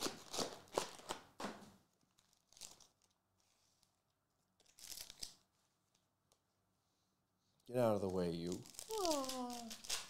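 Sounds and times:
foil wrappers crinkling and tearing: 2.1 - 3.9, 4.6 - 5.5, 7.9 - 10.0.

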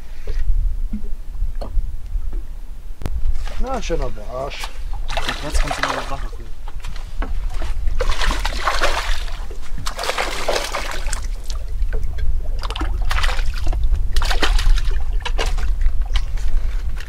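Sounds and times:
low steady rumble: 0.0 - 17.0
water splashing: 3.4 - 16.7.

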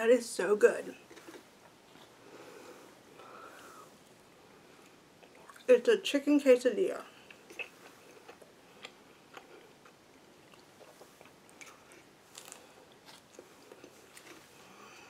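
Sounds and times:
person chewing: 4.8 - 5.7, 7.2 - 15.0.

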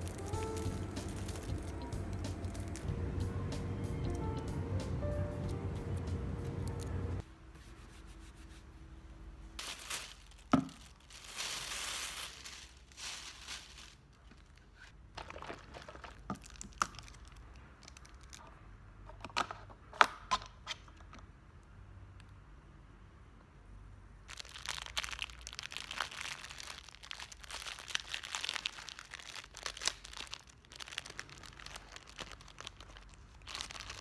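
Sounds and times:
plastic wrapping crinkling: 0.0 - 2.9, 9.6 - 18.5, 24.3 - 34.0.

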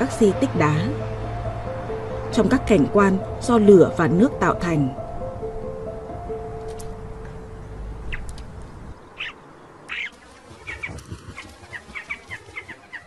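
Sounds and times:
choughs calling: 9.1 - 13.0.

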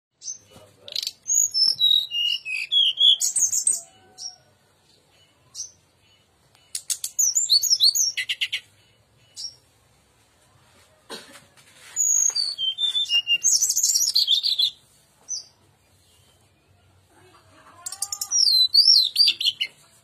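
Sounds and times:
bird singing whistled notes: 0.2 - 4.0, 5.5 - 9.6, 12.0 - 15.5, 18.4 - 19.7.

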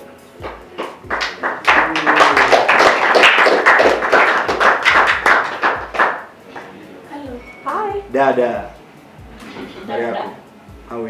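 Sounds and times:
audience clapping: 0.4 - 6.8.

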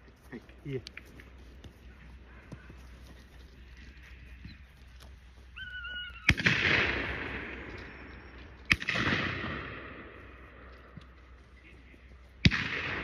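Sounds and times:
shotgun shots echoing: 6.3 - 10.7, 12.4 - 13.0.

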